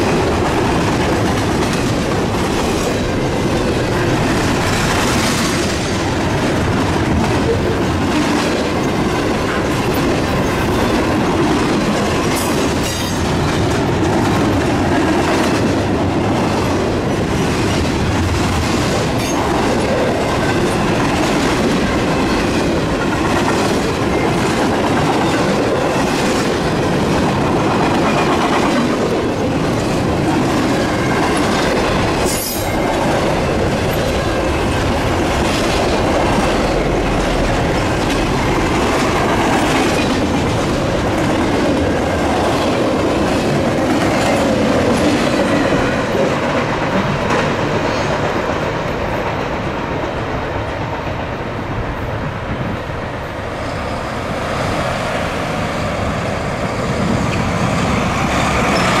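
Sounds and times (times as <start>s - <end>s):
freight train rumbling: 0.0s - 59.0s.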